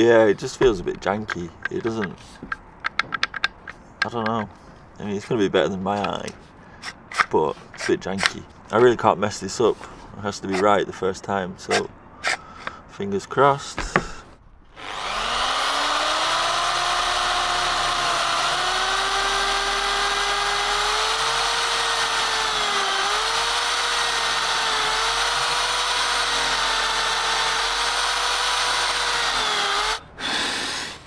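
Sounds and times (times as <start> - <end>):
electric drill boring into wood: 14.8 - 30.9.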